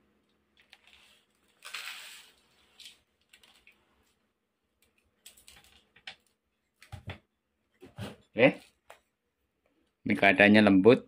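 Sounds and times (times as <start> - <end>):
ground corn sliding into bowl: 0.8 - 2.6.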